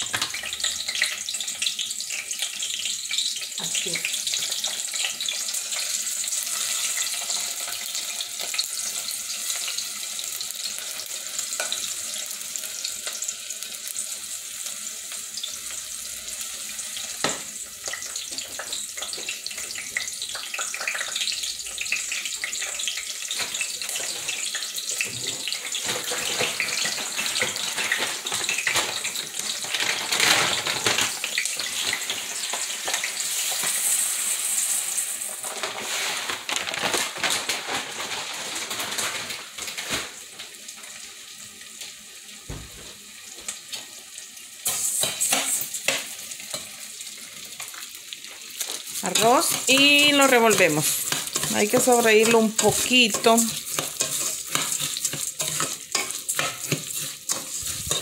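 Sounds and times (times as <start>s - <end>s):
vegetables sizzling in oil: 0.0s - 58.0s
dry rice poured into pan: 32.9s - 39.8s.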